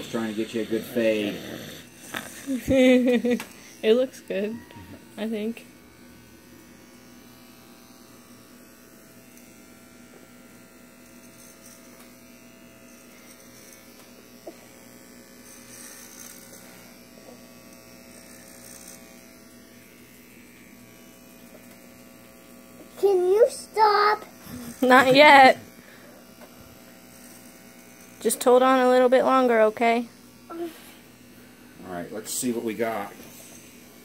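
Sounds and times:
electric hair clippers buzzing: 0.0s - 34.0s.

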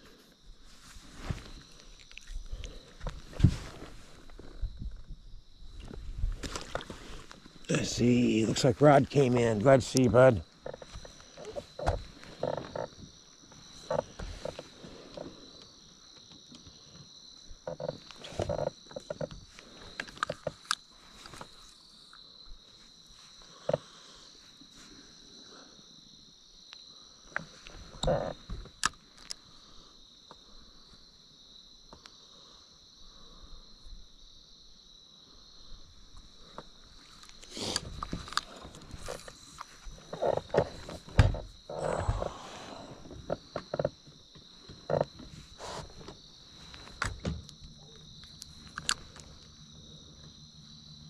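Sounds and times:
crickets chirping: 0.0s - 51.0s.

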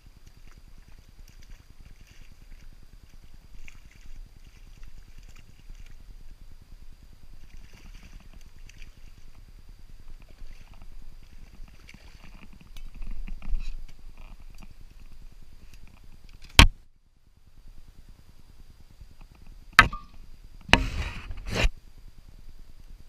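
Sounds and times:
sharp knock: 19.8s - 21.0s.

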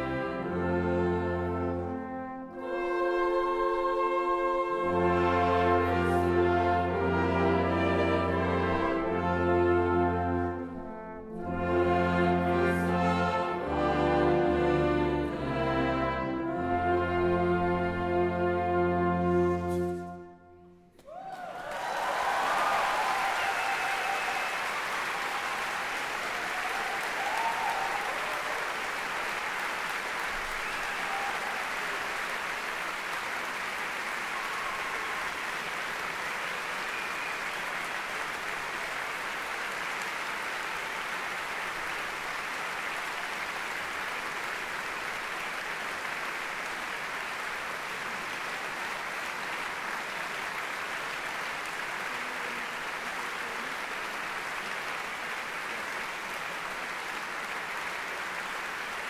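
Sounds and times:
audience applauding: 21.0s - 59.0s.

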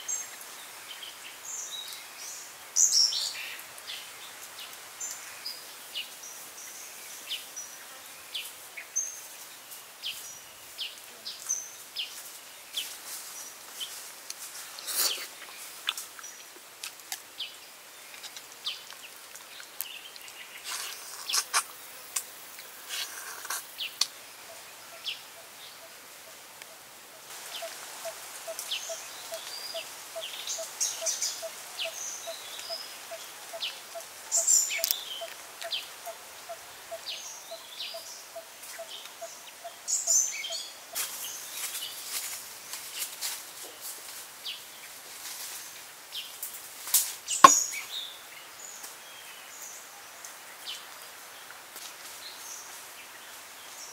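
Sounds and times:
birds chirping: 47.3s - 48.2s.

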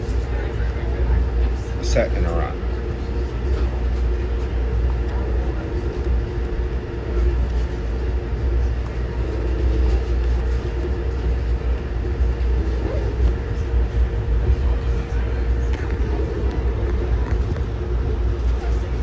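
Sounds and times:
steady hum: 0.0s - 19.0s.

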